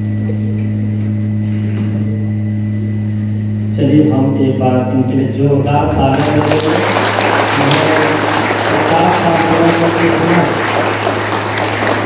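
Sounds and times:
steady low hum: 0:00.0 - 0:12.0
crowd applauding: 0:06.0 - 0:12.0.

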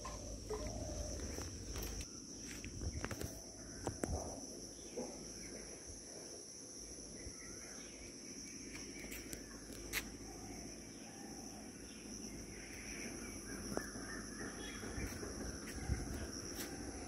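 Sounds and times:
faint bird calls: 0:00.0 - 0:02.0
high-pitched insect drone: 0:00.0 - 0:17.0.

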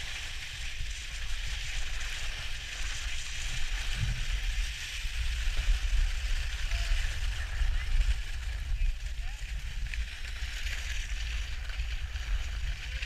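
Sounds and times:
skis sliding over snow: 0:00.0 - 0:13.0
wind rumbling on microphone: 0:00.0 - 0:13.0.

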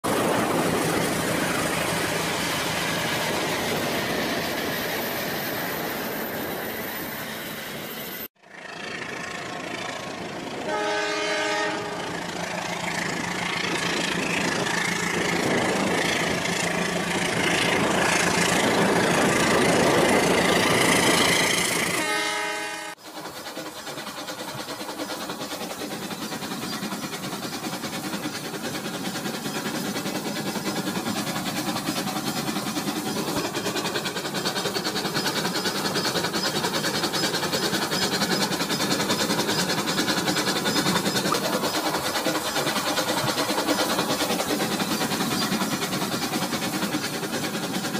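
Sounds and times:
toy trains whirring on plastic track: 0:23.1 - 0:47.9.

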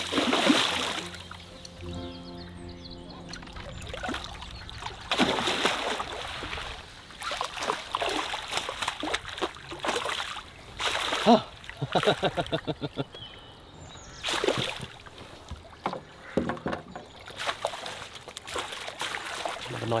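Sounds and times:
fish splashing in water: 0:00.0 - 0:01.4, 0:03.8 - 0:12.2, 0:14.2 - 0:15.8, 0:17.1 - 0:20.0.

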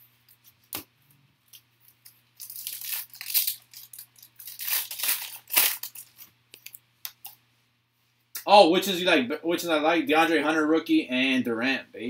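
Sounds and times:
foil wrapper crinkling and tearing: 0:01.9 - 0:06.8.

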